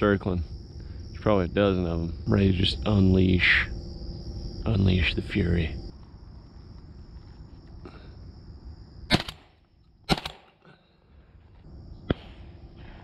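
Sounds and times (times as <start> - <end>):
sharp gunshot crack: 9.1 - 10.6
shotgun shots: 9.1 - 10.6.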